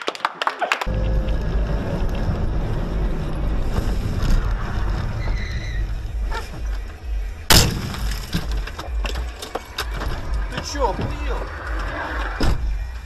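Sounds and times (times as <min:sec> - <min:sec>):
car engine and road noise: 0:00.9 - 0:13.0
loud bang on car: 0:07.5 - 0:08.5.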